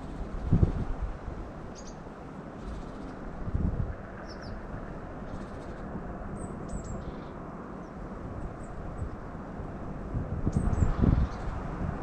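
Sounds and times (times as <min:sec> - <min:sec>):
songbirds chirping: 0:00.0 - 0:03.4, 0:04.0 - 0:09.9.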